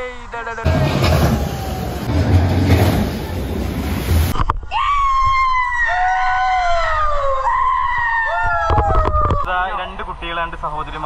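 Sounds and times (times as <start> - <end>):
rushing noise: 0.6 - 4.5
ride passengers screaming: 0.7 - 3.7, 4.7 - 9.5.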